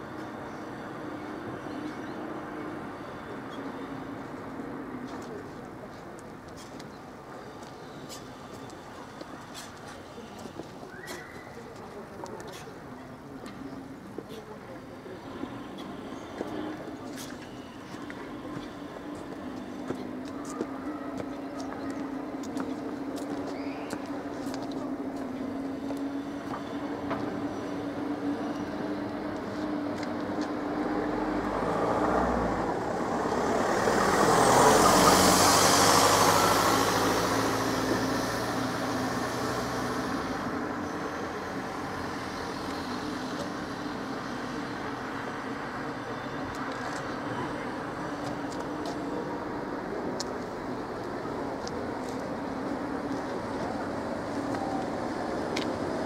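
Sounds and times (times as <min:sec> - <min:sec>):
steady engine hum: 0:11.8 - 0:56.0
vehicle passing with tyre noise: 0:22.1 - 0:56.0.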